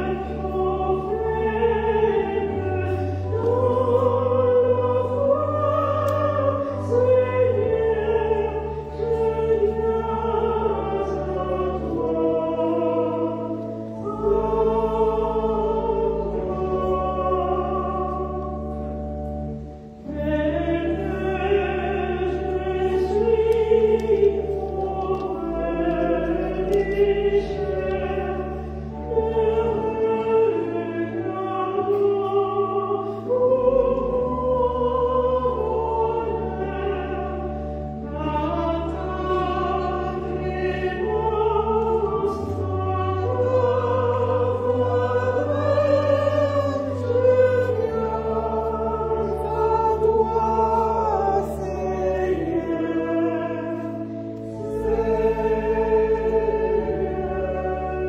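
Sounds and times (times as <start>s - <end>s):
choir singing: 0.0s - 58.0s
organ playing low notes: 0.0s - 58.0s.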